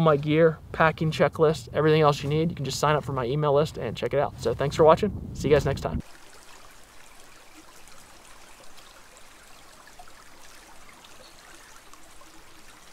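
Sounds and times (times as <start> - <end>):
creek babbling: 6.0 - 12.9.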